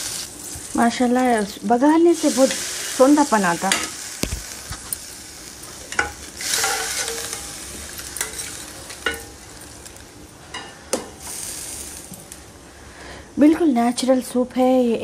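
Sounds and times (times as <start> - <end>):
hot oil sizzling: 0.0 - 13.1
metal spoon scraping pan: 5.9 - 7.6
ladle clinking in pot: 8.2 - 9.4.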